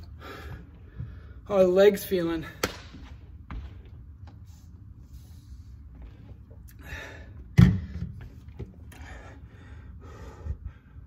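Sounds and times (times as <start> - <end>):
man breathing hard: 0.0 - 1.5, 6.7 - 8.1, 8.9 - 11.0.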